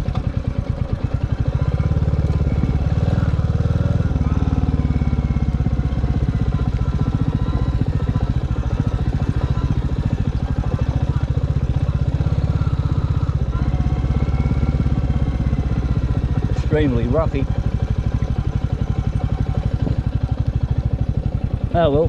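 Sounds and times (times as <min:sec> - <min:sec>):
motorcycle engine running: 0:00.0 - 0:22.0.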